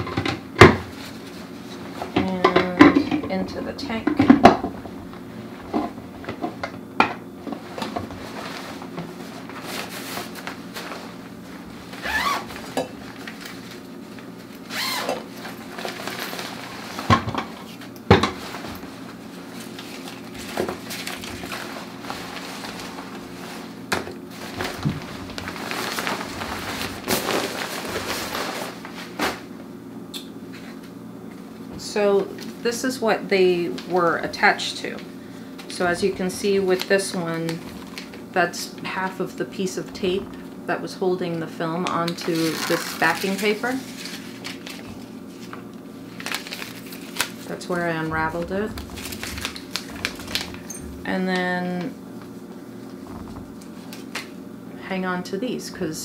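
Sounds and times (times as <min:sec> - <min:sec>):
fabric bag rustling: 0:24.3 - 0:29.3, 0:42.4 - 0:51.1.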